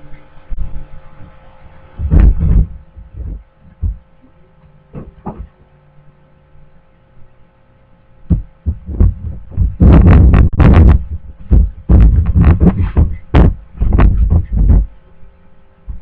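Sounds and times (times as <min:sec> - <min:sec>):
faint electrical hum: 0:00.0 - 0:16.0
dull low thumps: 0:02.0 - 0:04.2, 0:08.2 - 0:15.0.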